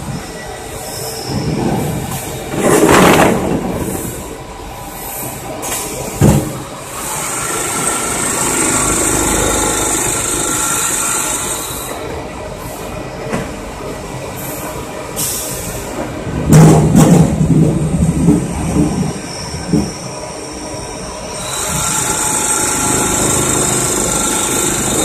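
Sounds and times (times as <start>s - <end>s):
machine clattering and rumbling: 1.3s - 4.2s, 16.3s - 20.0s, 21.5s - 25.0s
hiss: 14.4s - 16.0s.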